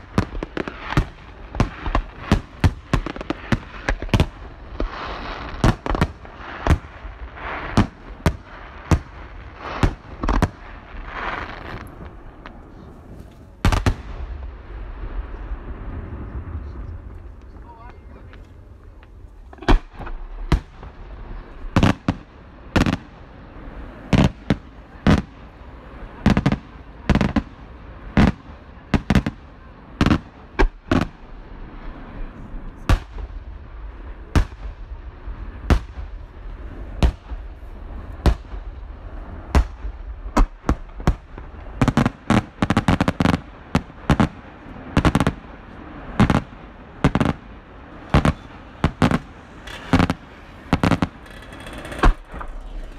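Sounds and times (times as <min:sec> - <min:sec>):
firework shells bursting: 0:48.1 - 0:52.9.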